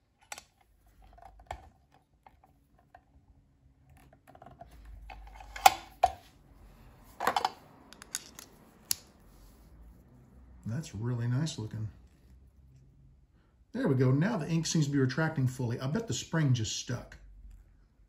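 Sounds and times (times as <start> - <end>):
pen parts clicking and knocking: 7.2 - 9.1.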